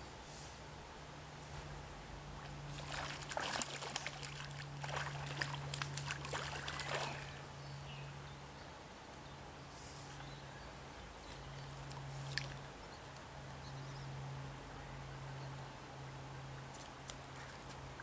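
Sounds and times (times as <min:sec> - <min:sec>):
fish splashing in water: 0:02.7 - 0:07.4.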